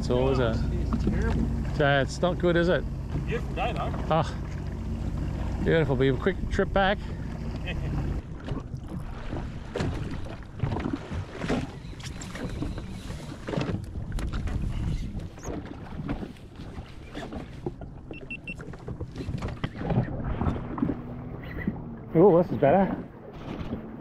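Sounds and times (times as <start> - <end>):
jet ski engine rumble: 0.0 - 24.0
water slapping hull: 0.0 - 24.0
knocks on hull: 8.2 - 11.7.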